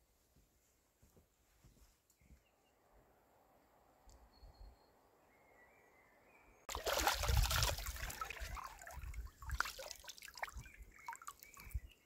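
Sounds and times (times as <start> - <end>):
hands splashing water: 6.7 - 11.8
water dripping: 6.7 - 11.8.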